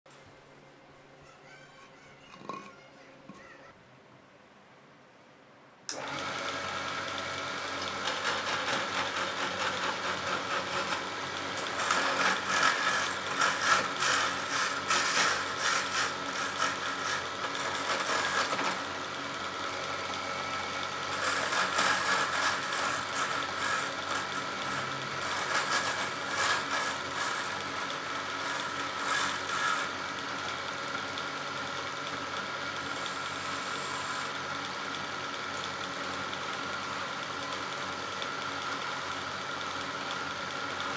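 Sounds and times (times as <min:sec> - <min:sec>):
wood lathe running: 0:05.9 - 0:40.9
gouge scraping spinning wood: 0:06.1 - 0:30.7, 0:32.2 - 0:34.4.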